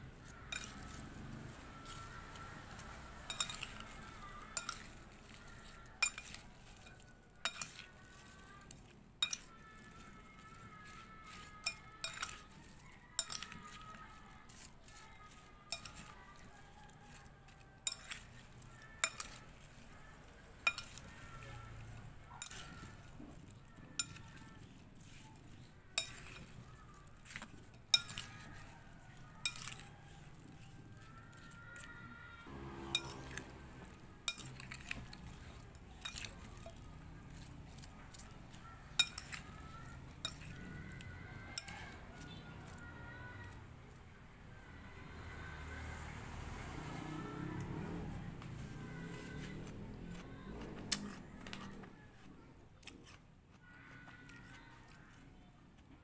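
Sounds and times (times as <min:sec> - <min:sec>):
metal spoon clinking ceramic bowl: 0:00.2 - 0:32.1, 0:32.8 - 0:43.6.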